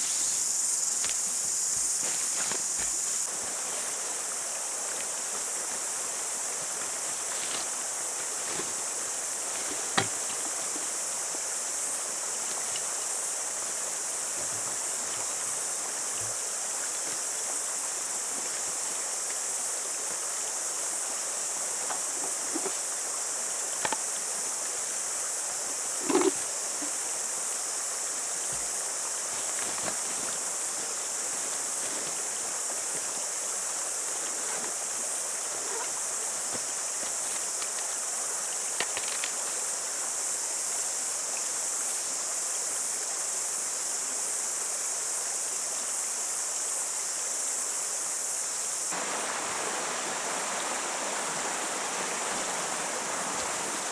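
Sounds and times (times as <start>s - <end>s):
backpack and gear rustling: 0.0s - 4.0s, 6.6s - 11.0s, 26.0s - 26.5s, 28.5s - 33.0s
high-pitched insect chorus: 0.0s - 53.9s.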